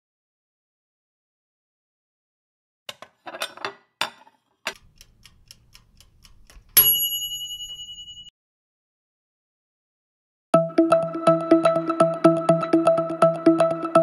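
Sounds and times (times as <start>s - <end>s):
timer ticking: 4.7s - 8.2s, 10.6s - 14.0s
bright bell ding: 6.8s - 8.3s.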